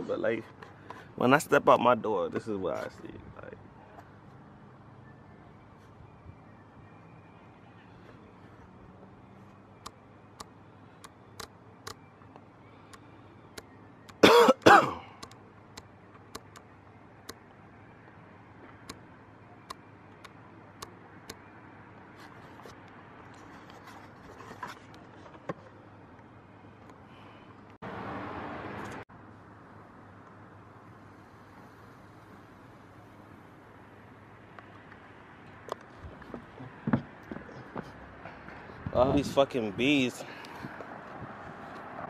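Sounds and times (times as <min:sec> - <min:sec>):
man coughing: 0:14.2 - 0:15.2.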